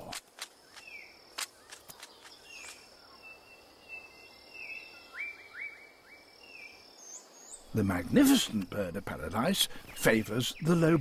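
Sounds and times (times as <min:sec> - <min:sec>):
falling bird chirps: 0:00.0 - 0:08.8
high insect hum: 0:00.0 - 0:11.0.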